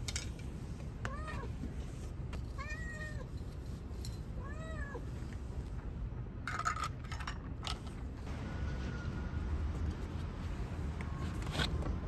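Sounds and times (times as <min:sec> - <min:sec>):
cat meowing: 0:02.6 - 0:03.3.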